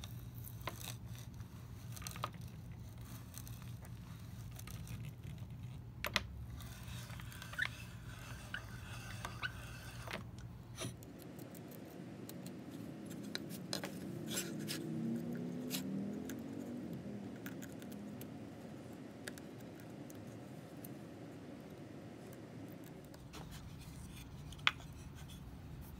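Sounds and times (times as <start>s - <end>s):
knife scraping wood: 6.5s - 16.1s, 23.2s - 25.9s.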